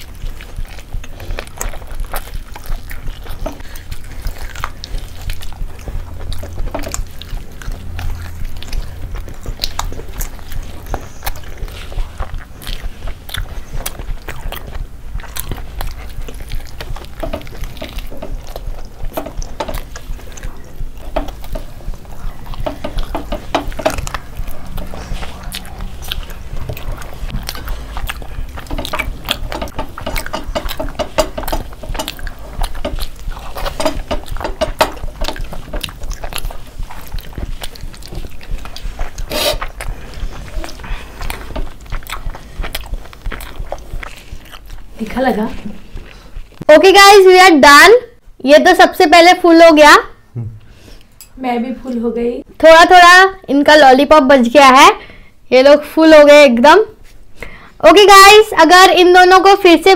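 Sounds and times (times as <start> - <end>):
wet lip smacks: 0.0 - 45.0
chewing and biting food: 0.0 - 46.7
steady low hum: 0.0 - 59.9.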